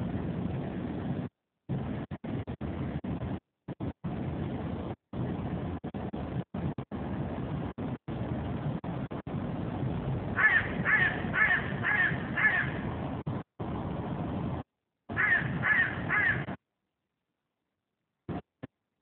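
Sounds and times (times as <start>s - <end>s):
low rumbling noise: 0.0s - 16.6s
bird cawing: 10.4s - 12.9s, 15.1s - 16.6s.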